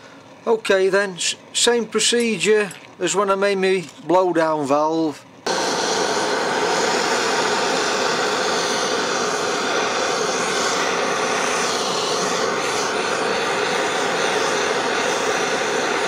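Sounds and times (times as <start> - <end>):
blowtorch burning: 5.4 - 16.0.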